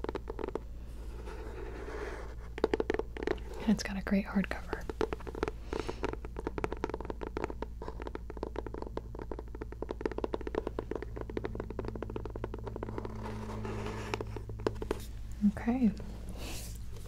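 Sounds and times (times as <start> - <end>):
fingernails tapping on hardcover: 4.8 - 15.1.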